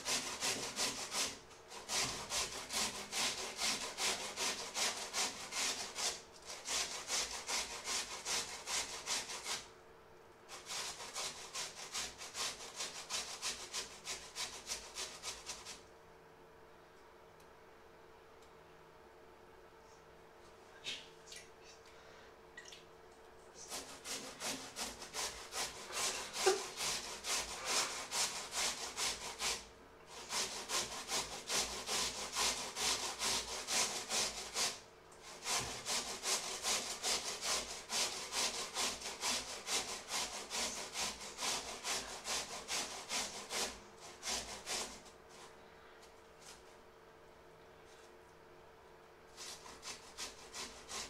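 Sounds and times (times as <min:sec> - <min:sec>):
potatoes grated on metal grater: 0:00.0 - 0:09.7, 0:10.5 - 0:15.8, 0:23.6 - 0:45.5, 0:49.3 - 0:51.0.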